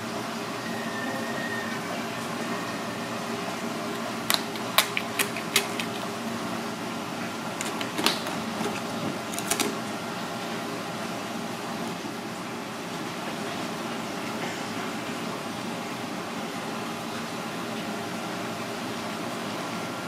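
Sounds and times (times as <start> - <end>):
steady background hum: 0.0 - 20.0.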